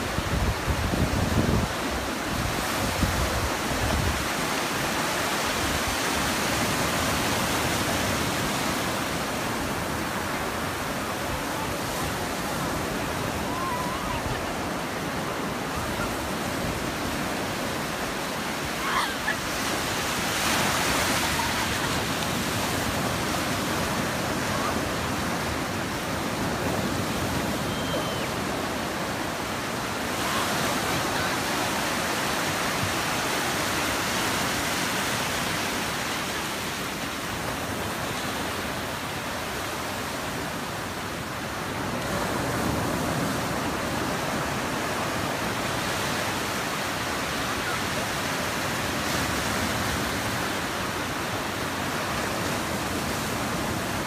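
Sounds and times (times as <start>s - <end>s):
ocean surf breaking on sand: 0.0s - 54.0s.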